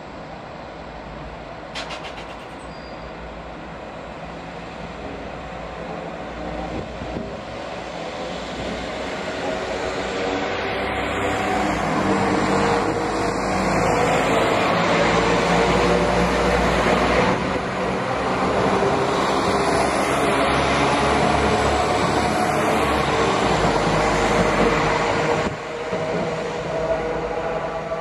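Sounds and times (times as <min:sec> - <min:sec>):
diesel train engine hum: 0:00.0 - 0:28.0
train wheels rumbling on rails: 0:01.0 - 0:28.0.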